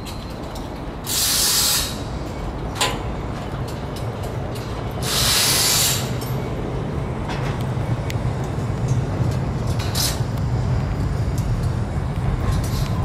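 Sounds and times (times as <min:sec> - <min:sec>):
loud hiss: 0:01.0 - 0:02.1, 0:05.0 - 0:06.2.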